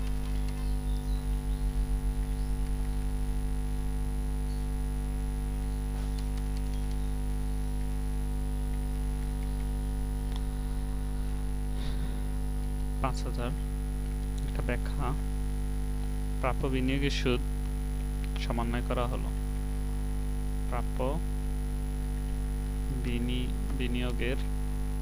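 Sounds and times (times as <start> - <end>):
faint keyboard clicks: 0.0 - 0.7, 6.0 - 7.0
electrical mains hum: 0.0 - 25.0.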